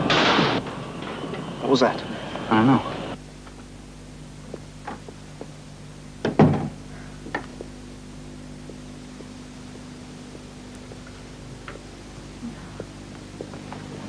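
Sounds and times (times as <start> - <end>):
steady low hum: 0.0 - 14.0
door thumping shut: 6.2 - 6.8.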